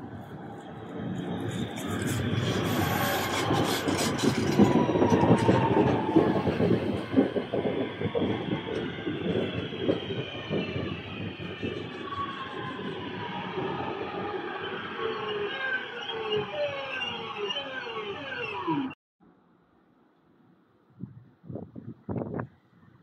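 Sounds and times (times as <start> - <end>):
train wheels clattering: 0.0 - 13.7
train motor whine: 0.0 - 19.0.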